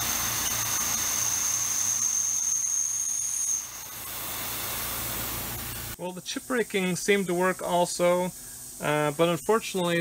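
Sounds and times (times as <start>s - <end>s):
high-pitched spindle whine: 0.0s - 10.0s
steady hiss: 0.0s - 10.0s.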